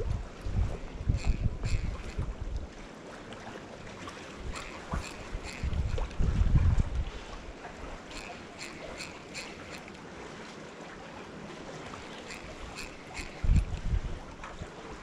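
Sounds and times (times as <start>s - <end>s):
wind gusting on microphone: 0.0s - 2.7s, 4.4s - 8.2s, 12.4s - 15.0s.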